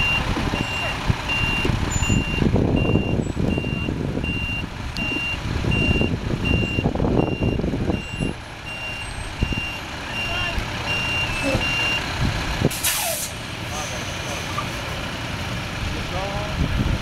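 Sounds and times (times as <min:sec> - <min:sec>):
reversing alarm beeping: 0:00.0 - 0:12.0.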